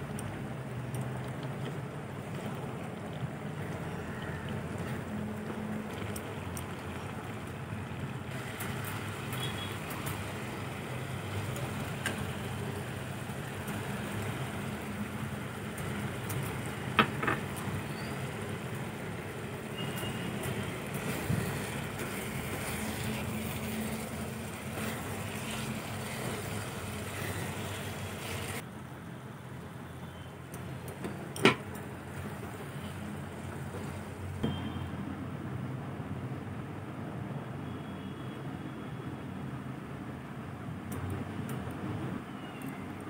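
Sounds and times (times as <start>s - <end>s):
food bubbling in a wok: 0.0s - 34.9s
spatula stirring: 19.8s - 28.6s.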